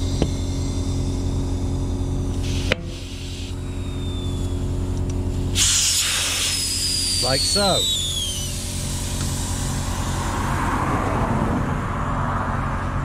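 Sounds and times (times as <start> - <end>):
air compressor running: 0.0 - 10.8
air hissing into tyre: 2.0 - 4.5, 5.4 - 10.8.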